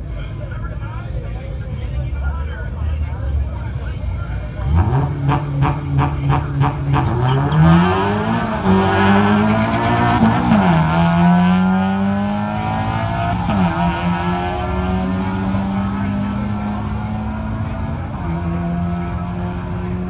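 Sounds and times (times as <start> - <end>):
car engine popping and revving: 4.6 - 20.0.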